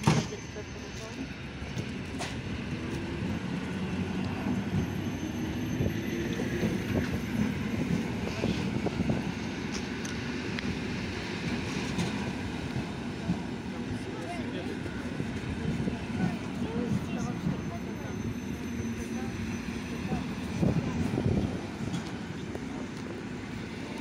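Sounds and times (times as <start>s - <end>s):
train wheels rumbling: 0.0s - 24.0s.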